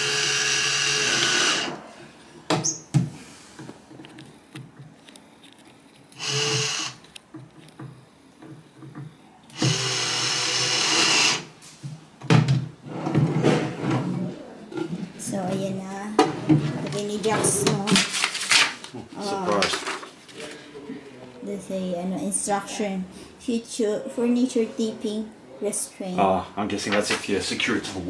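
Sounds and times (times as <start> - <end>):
cordless drill driving screws: 0.0 - 1.7, 6.2 - 7.0, 9.5 - 11.5.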